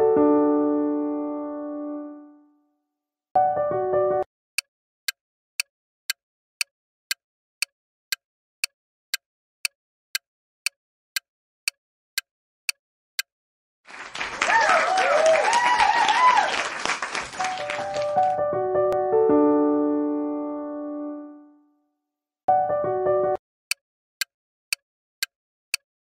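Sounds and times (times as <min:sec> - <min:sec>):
crowd applauding and cheering: 0:13.9 - 0:18.4.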